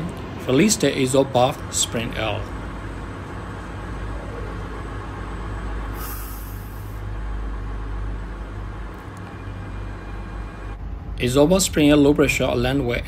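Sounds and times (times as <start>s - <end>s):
machinery hum: 0.0s - 13.0s
compressed air hiss: 5.9s - 7.0s.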